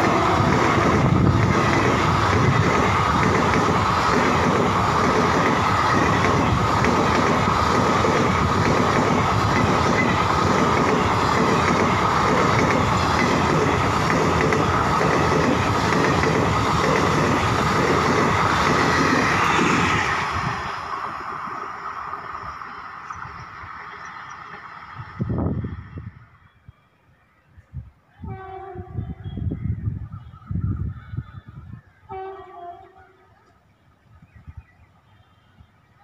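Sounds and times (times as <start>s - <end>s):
train wheels clattering on rails: 0.0s - 20.5s.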